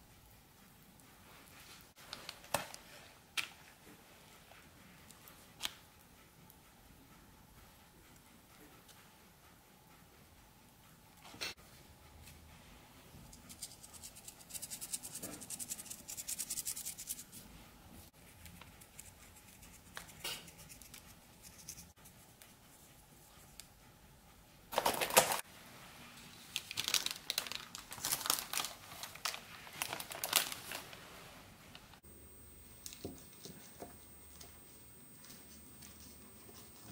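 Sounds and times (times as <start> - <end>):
paper crinkling and rustling: 24.7 - 25.4, 26.4 - 31.1.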